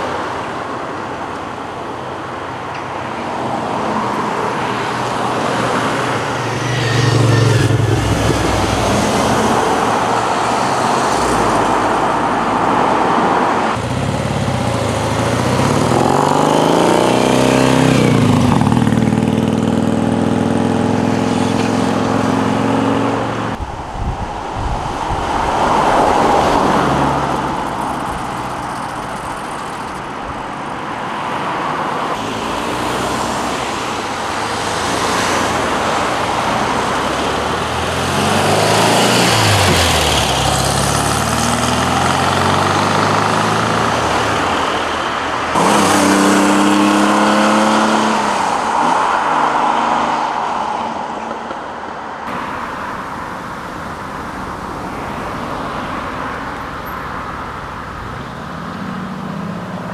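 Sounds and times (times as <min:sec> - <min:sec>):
cars accelerating past: 0:03.3 - 0:30.2, 0:31.1 - 0:57.7.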